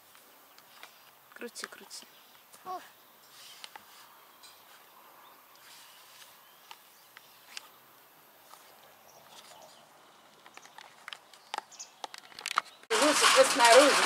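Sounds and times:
plastic cable reel clicking: 10.5s - 14.0s.

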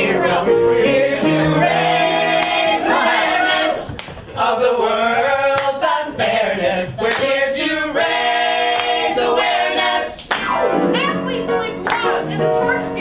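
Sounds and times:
choir singing in harmony: 0.0s - 10.3s.

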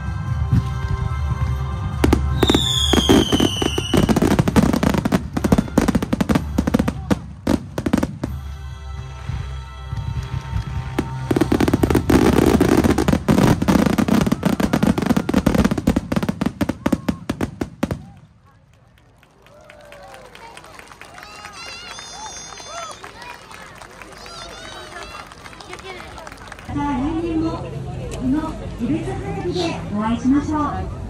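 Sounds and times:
music playing: 0.0s - 16.6s
fireworks bangs and crackling: 0.3s - 8.6s, 10.0s - 18.4s
firework whistle falling: 2.4s - 4.3s.

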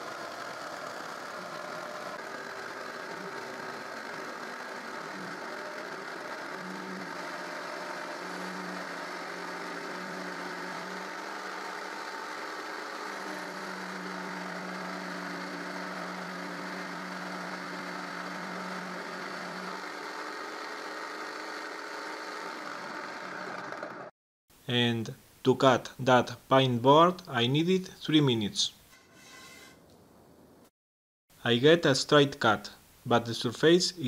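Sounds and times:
jigsaw cutting wood: 0.0s - 24.1s.

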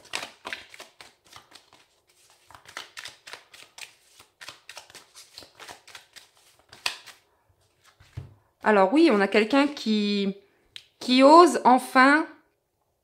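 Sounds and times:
cards being shuffled by hand: 0.0s - 8.4s.

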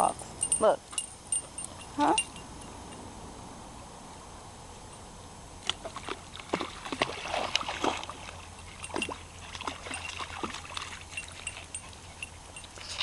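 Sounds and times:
puppy splashing in water: 5.6s - 13.0s.

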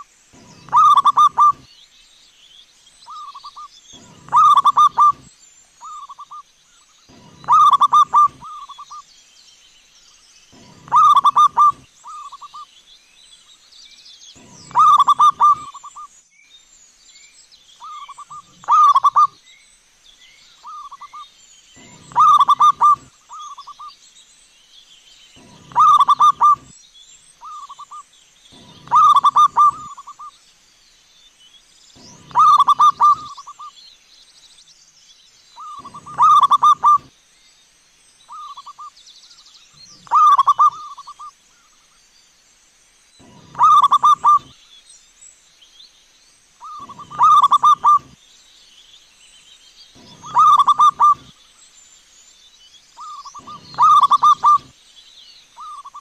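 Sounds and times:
dove cooing: 0.0s - 1.7s, 3.1s - 6.4s, 7.1s - 9.0s, 10.6s - 12.6s, 14.4s - 16.0s, 17.8s - 19.4s, 21.8s - 23.8s, 25.4s - 26.7s, 28.6s - 30.3s, 32.0s - 33.7s, 35.6s - 37.1s, 40.0s - 41.2s, 43.2s - 44.5s, 46.6s - 48.2s, 50.0s - 51.3s, 53.0s - 54.7s.

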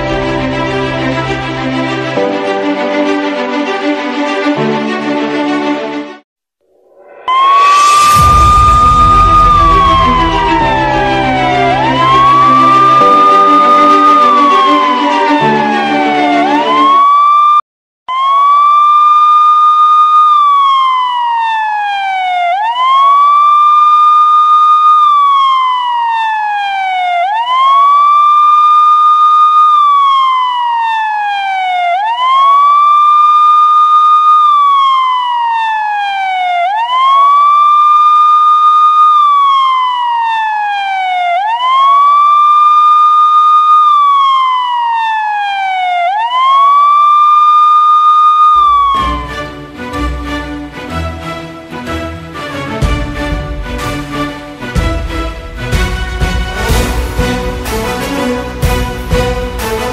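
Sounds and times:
music: 0.0s - 6.2s, 6.8s - 17.0s, 48.6s - 59.9s
siren wailing: 6.8s - 50.4s.

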